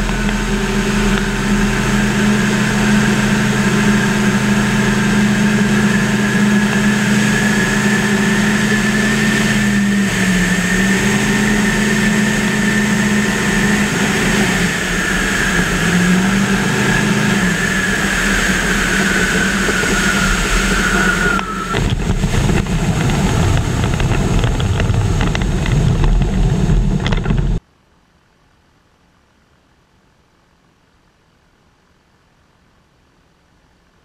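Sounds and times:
bumpy rumble over grass: 0.0s - 27.6s
wind rush: 0.0s - 27.6s
ultralight engine and propeller: 0.0s - 27.7s.

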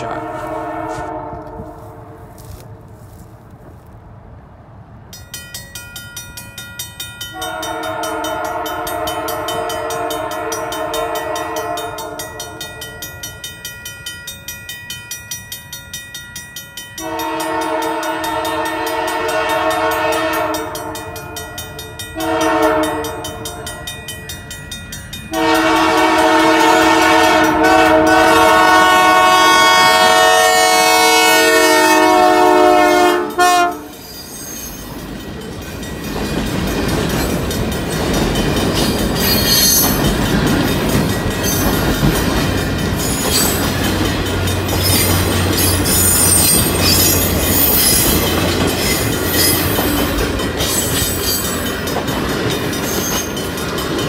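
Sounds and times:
train horn blasts: 0.0s - 2.6s, 7.3s - 13.1s, 17.0s - 23.9s, 25.3s - 34.0s
crossing bell ringing: 5.1s - 54.0s.

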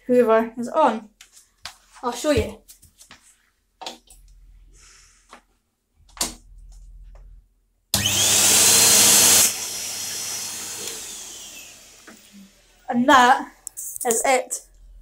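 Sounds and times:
vacuum cleaner motor whine: 8.0s - 12.9s.

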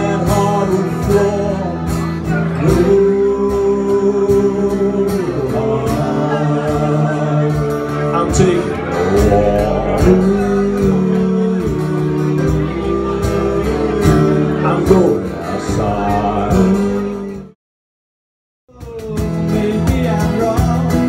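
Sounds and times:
acoustic guitar: 0.0s - 17.6s, 18.7s - 21.0s
electric bass: 0.0s - 17.6s
voices singing held notes: 2.6s - 17.6s.

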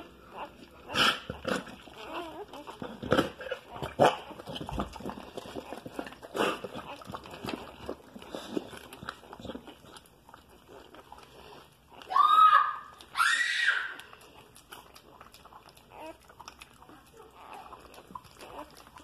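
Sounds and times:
snuffling and rustling: 0.0s - 11.9s.

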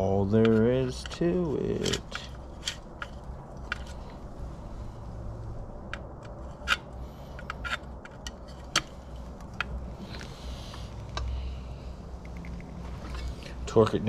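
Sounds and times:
low hum: 0.0s - 14.0s
scraping rustle: 12.7s - 13.8s.

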